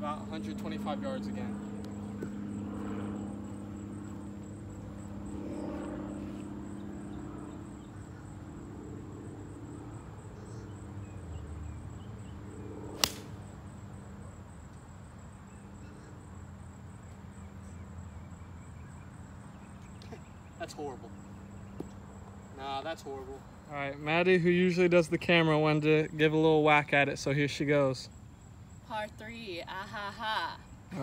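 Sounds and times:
golf club striking ball: 13.0 - 13.4.

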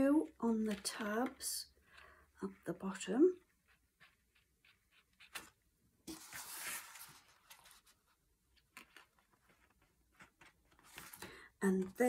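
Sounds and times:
stiff card paper rustling: 3.5 - 12.0.

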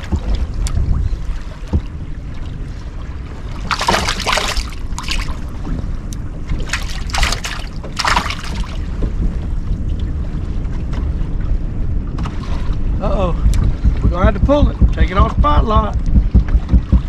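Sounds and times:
trolling motor low rumble: 0.0 - 17.0
wind on microphone: 0.0 - 17.0
hissing water splashes: 3.6 - 5.5, 6.6 - 8.8.

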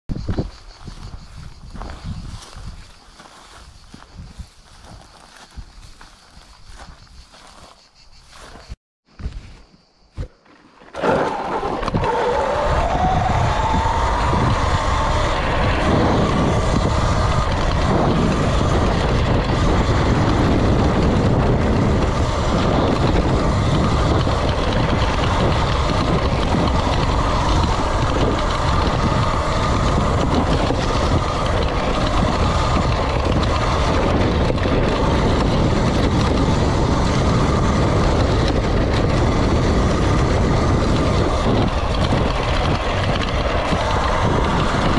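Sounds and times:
rumble and rattle from ground: 0.1 - 44.9
electric motor whine: 10.8 - 44.9.

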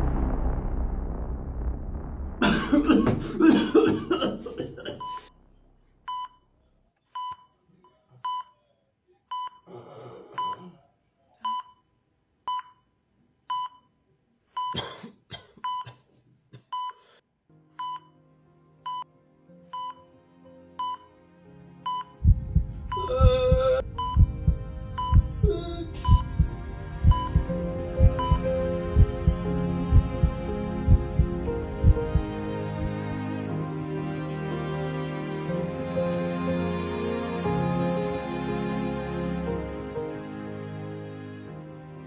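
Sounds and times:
loud noise: 0.0 - 6.1
low music: 0.0 - 6.6, 18.2 - 42.0.

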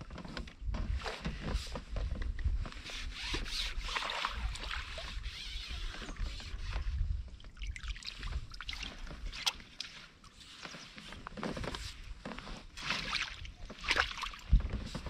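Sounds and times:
rustling and light knocks: 0.0 - 3.8, 4.6 - 15.0
water splashing: 3.8 - 5.9, 7.5 - 10.1, 12.8 - 14.6.

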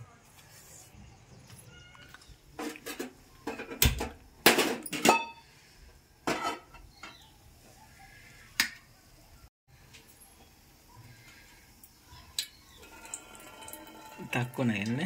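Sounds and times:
pot clanking on metal stove: 6.2 - 7.2.

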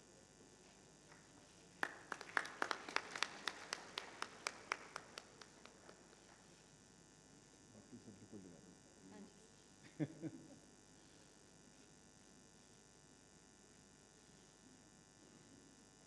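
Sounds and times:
people clapping: 1.1 - 6.6.

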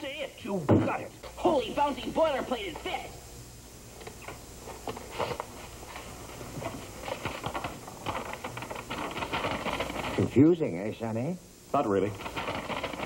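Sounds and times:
stiff paper crackling and rustling: 4.9 - 10.3, 12.2 - 13.0.

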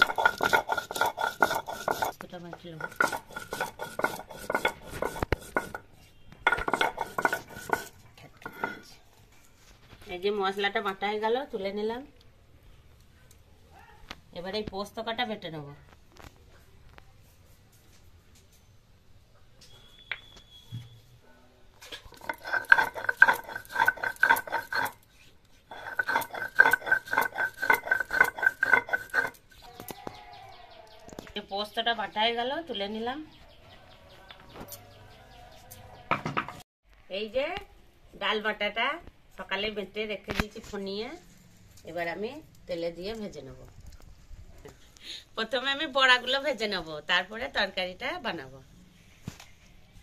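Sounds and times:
stone roller grating on grinding stone: 0.0 - 8.9, 22.1 - 29.5.

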